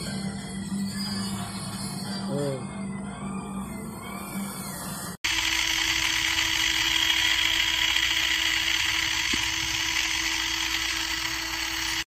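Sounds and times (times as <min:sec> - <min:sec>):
washing machine spinning: 0:05.2 - 0:12.0.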